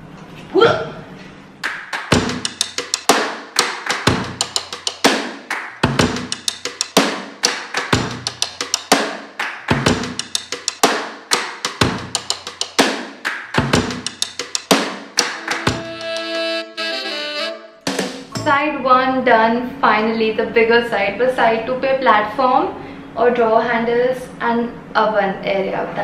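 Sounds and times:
looping drum-kit beat: 1.6s - 18.6s.

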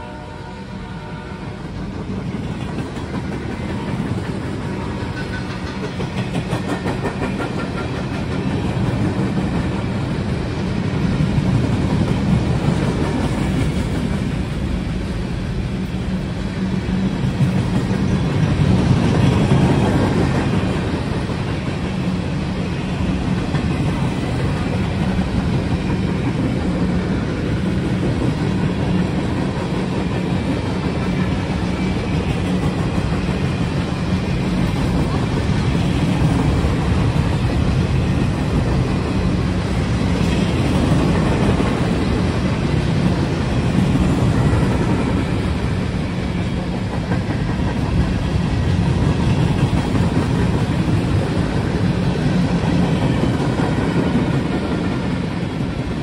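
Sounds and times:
train horn blast: 0.0s - 1.8s
train rumbling on rails: 0.0s - 56.0s.

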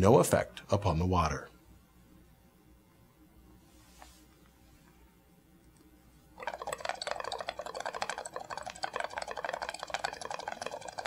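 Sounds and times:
air bubbling through liquid: 6.4s - 11.0s.

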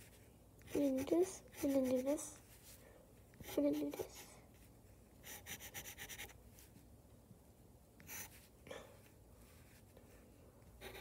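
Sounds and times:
pencil scratching on paper: 0.0s - 2.3s, 3.4s - 4.3s, 5.2s - 6.4s, 8.0s - 8.5s, 10.8s - 11.0s.

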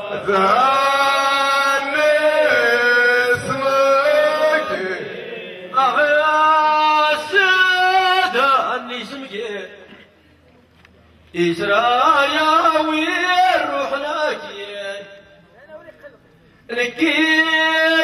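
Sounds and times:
men chanting together: 0.0s - 8.6s.

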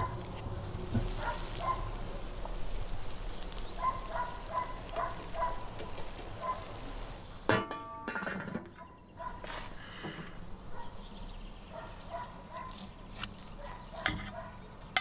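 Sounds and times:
light metal clatter: 7.5s - 8.9s
metal lid clanking: 7.5s - 8.9s, 14.0s - 14.4s.

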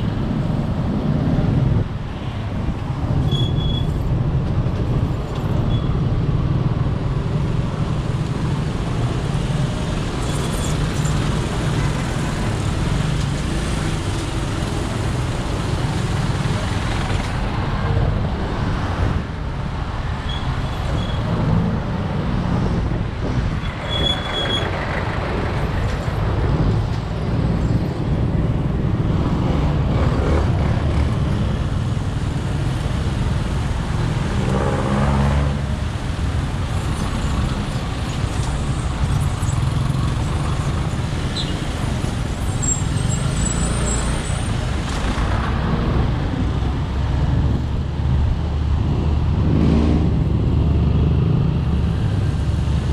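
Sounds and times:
traffic and road noise: 0.0s - 52.9s.

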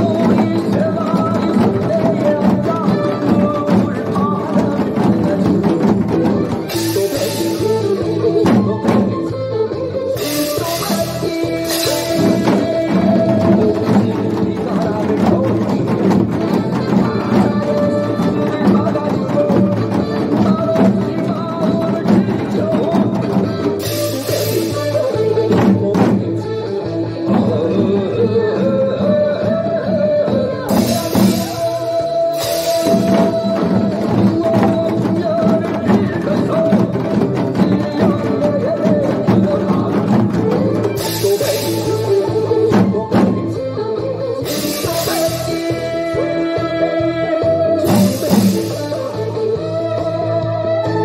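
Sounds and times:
recorded pop song: 0.0s - 51.0s
hourglass drums struck in rhythm: 10.2s - 26.0s, 30.7s - 43.4s, 44.4s - 46.2s.

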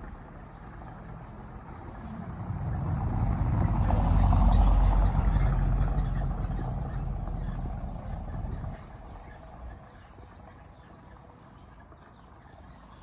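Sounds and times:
car passing by: 0.0s - 10.0s.

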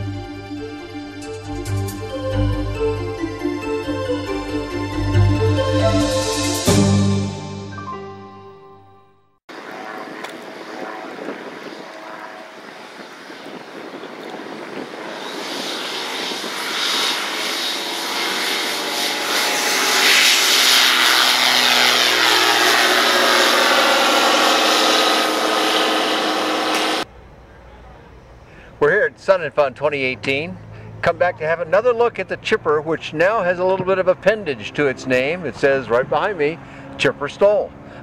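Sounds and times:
light aircraft engine and propeller: 9.5s - 28.8s, 30.2s - 38.0s.

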